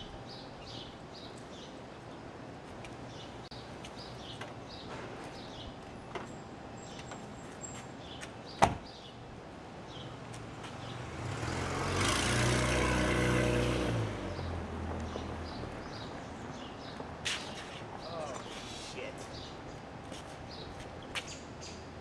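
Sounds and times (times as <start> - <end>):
car door slamming: 8.6 - 8.9
car passing: 10.5 - 17.1.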